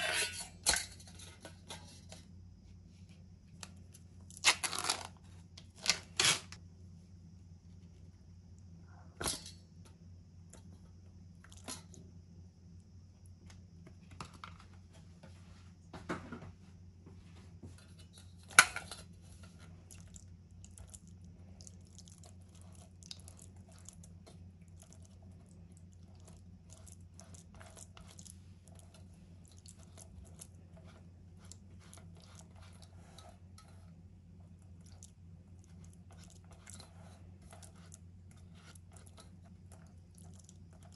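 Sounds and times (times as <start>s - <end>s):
steady low hum: 0.0s - 40.9s
spatula squishing tofu on mesh: 19.3s - 40.9s.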